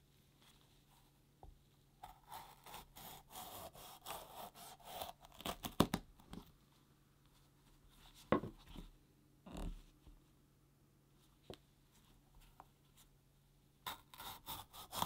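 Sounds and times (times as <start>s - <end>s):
knife slicing pepper: 2.0s - 5.8s, 13.9s - 15.0s.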